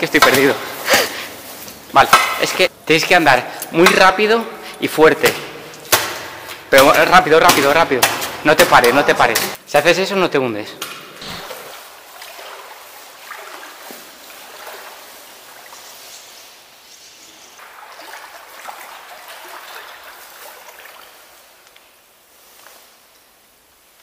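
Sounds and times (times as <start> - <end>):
footsteps squelching through mud: 10.9 - 16.8.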